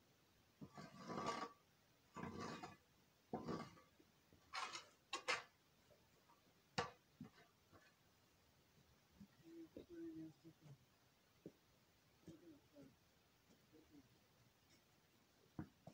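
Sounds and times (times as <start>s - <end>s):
shovel scraping and scooping manure: 0.6s - 2.8s, 3.4s - 3.9s, 4.5s - 5.5s.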